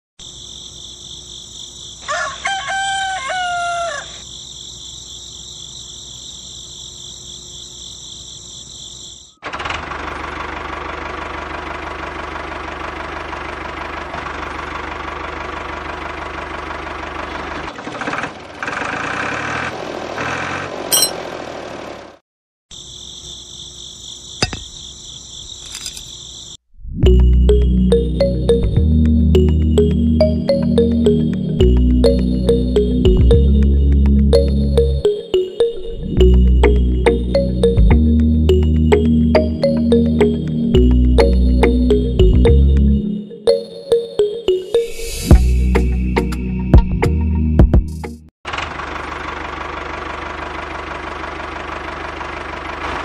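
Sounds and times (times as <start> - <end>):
rooster crowing: 2.0 - 4.3.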